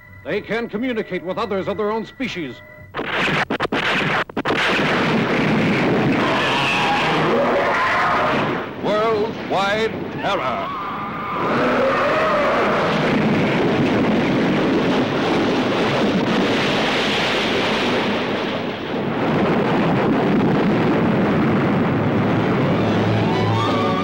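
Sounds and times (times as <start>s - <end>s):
churning water and crashing: 11.2s - 24.0s
wavering tone: 22.8s - 24.0s.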